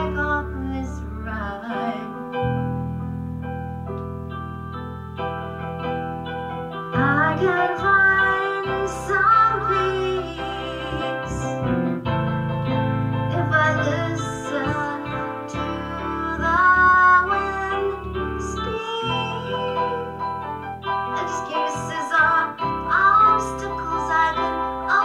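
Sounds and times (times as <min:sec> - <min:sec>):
woman singing: 0:00.0 - 0:02.4, 0:07.0 - 0:11.6, 0:13.3 - 0:25.0
keyboard accompaniment: 0:00.0 - 0:25.0.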